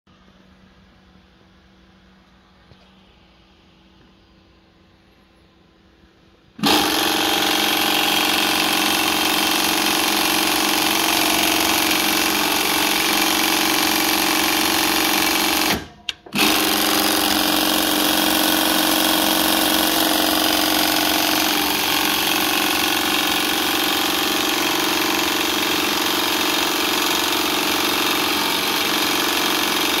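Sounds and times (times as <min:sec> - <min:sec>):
sewing machine stitching: 0:06.6 - 0:30.0.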